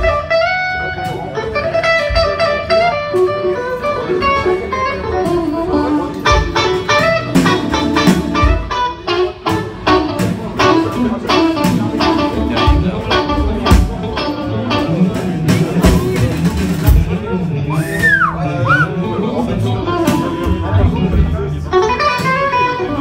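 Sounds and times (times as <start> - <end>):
drum kit hits: 0.0 - 17.3
electric guitar playing: 0.0 - 23.0.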